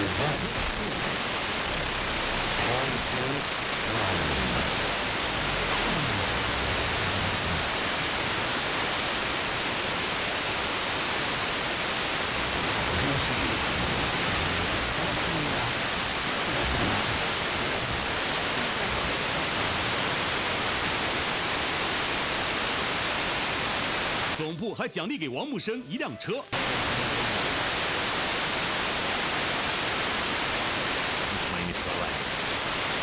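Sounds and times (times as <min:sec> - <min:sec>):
faint radio speech: 0:00.0 - 0:08.0, 0:12.3 - 0:20.1, 0:24.4 - 0:27.7, 0:31.3 - 0:32.4
radio static hiss: 0:00.0 - 0:33.0.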